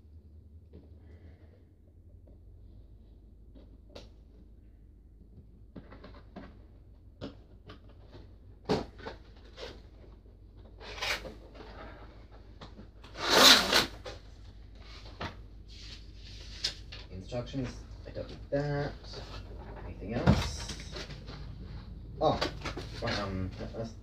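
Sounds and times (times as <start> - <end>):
cardboard and packaging rustling: 5.7 - 24.0
scissors cutting cardboard: 13.2 - 14.1.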